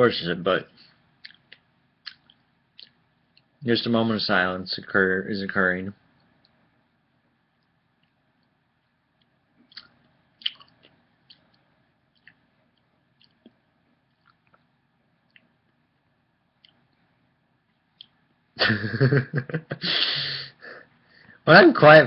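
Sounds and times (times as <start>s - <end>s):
mouth chewing: 9.2s - 15.6s.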